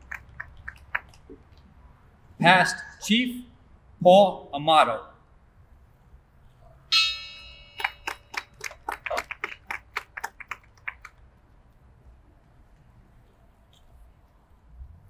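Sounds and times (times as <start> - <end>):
bell ringing: 6.9 - 8.6.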